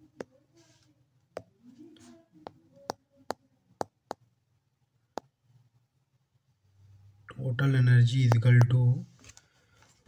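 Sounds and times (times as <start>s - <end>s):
stylus tapping a touchscreen: 2.4s - 4.3s, 8.2s - 9.0s.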